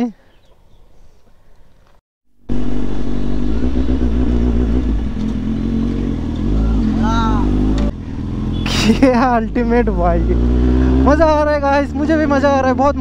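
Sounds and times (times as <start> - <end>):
motorcycle engine running: 2.5 - 11.8.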